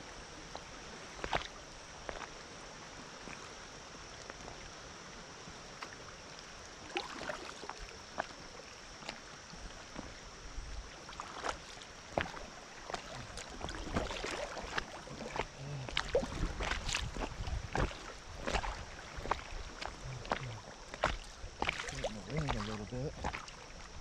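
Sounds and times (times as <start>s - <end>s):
floodwater splashing around kayak: 0.0s - 24.0s
low rumble of moving water: 0.0s - 24.0s.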